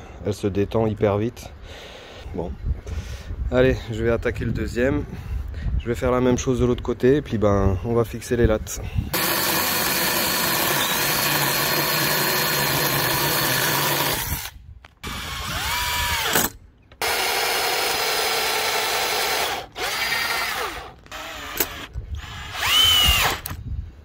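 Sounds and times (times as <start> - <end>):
chainsaw cutting wood: 9.1 - 23.6
cordless drill driving screws: 9.2 - 23.6.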